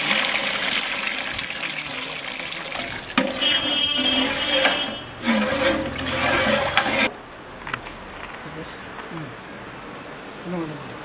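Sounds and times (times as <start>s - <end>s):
water pouring into a pot: 0.0s - 4.7s.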